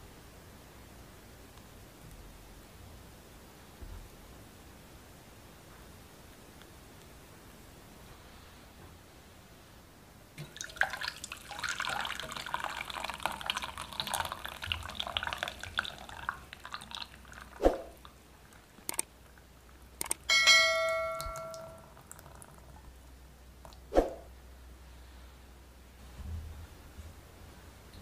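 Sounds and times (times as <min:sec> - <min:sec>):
chocolate mixture pouring through sieve: 0:10.4 - 0:18.9
sharp metallic clink: 0:20.2 - 0:21.9.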